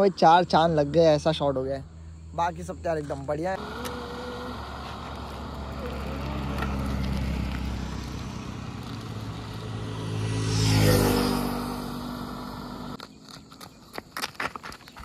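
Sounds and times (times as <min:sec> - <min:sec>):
motorcycle riding past: 0:03.6 - 0:13.0.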